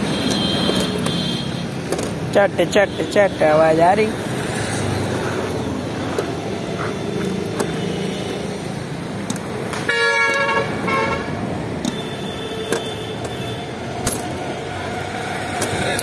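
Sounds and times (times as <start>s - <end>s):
car horn honking: 0.0s - 1.7s, 6.9s - 8.5s, 9.8s - 13.8s
street noise: 0.0s - 16.0s
hand riveter clicks: 9.2s - 9.8s.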